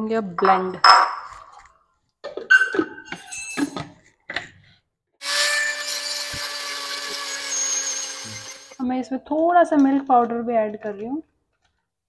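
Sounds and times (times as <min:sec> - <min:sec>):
mixer grinder motor running: 0:05.2 - 0:08.8.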